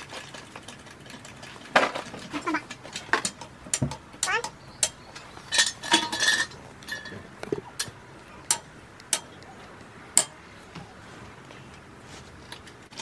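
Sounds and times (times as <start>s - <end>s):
sharp metallic clicks and clinks: 0.3s - 7.2s, 7.8s - 9.5s.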